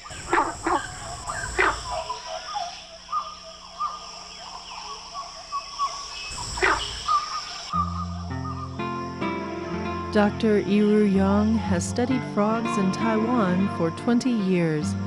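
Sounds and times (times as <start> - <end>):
frogs calling: 0.0 - 15.0
high insect trill: 0.0 - 15.0
plucked guitar music: 7.8 - 15.0.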